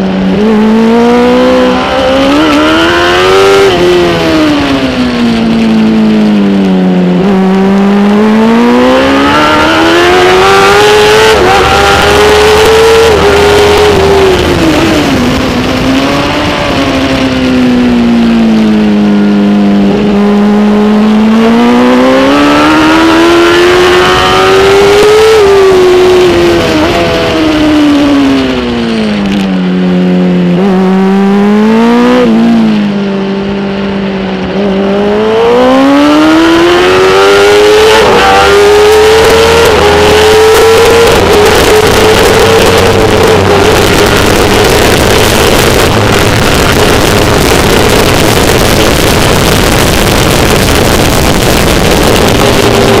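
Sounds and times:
motorcycle engine revving: 0.0s - 53.0s
wind rush: 8.4s - 19.0s, 31.7s - 53.0s.

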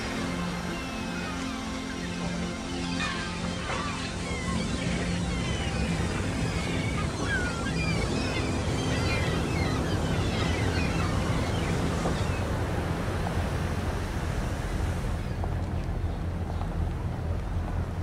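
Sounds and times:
low steady drone: 0.0s - 18.0s
waves and wind rushing: 0.0s - 18.0s.

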